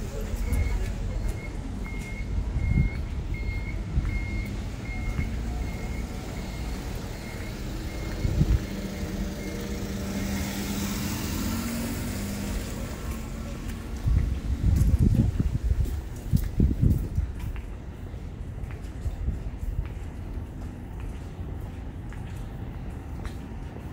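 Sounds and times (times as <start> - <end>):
passing vehicle engine hum: 0.0 - 23.9
street traffic noise: 0.0 - 23.9
reversing alarm beeping: 0.2 - 11.7.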